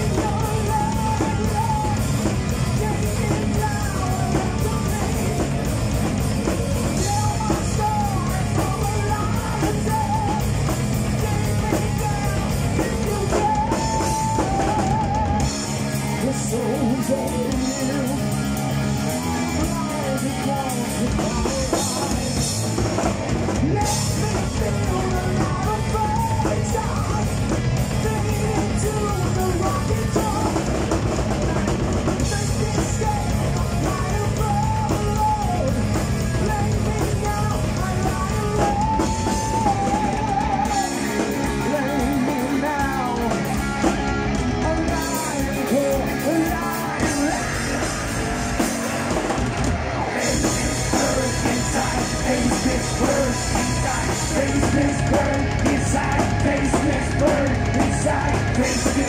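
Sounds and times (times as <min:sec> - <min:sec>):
man singing: 0:00.0 - 0:49.1, 0:50.0 - 0:59.0
bass guitar: 0:00.0 - 0:59.0
distorted electric guitar: 0:00.0 - 0:59.0
drum kit: 0:00.0 - 0:59.0.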